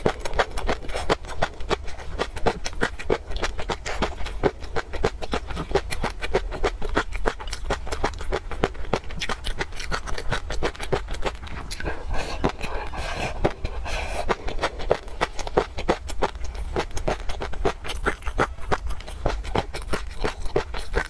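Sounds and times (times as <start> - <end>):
crunchy chewing: 0.0 - 21.0.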